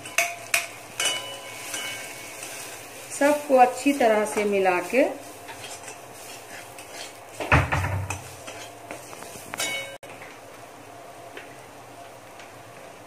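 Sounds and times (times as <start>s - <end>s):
metal spatula stirring: 0.0s - 10.0s.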